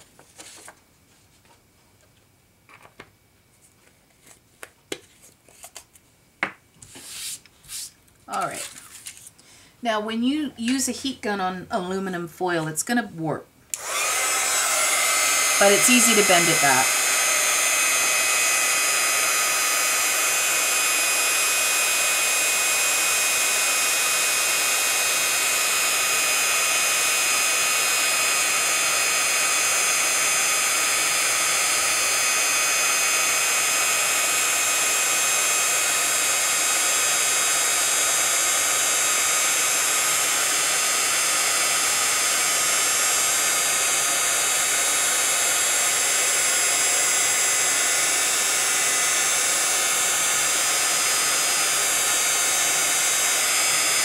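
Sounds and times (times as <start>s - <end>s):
heat gun blowing: 13.7s - 54.0s.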